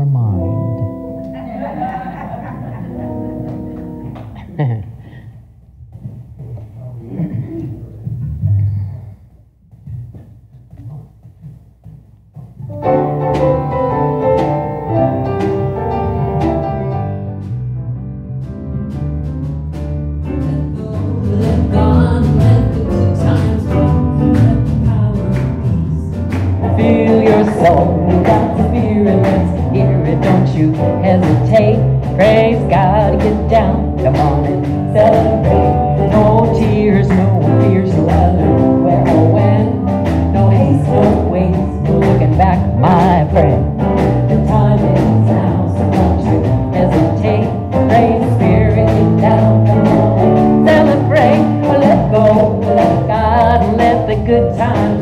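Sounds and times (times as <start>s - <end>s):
live band playing: 0.0s - 4.7s, 12.6s - 55.0s
woman singing: 20.3s - 55.0s.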